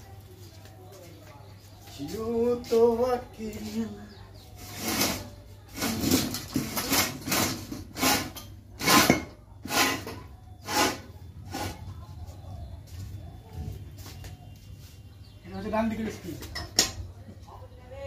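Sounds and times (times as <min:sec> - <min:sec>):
rasping metal scrapes: 0:04.6 - 0:11.9.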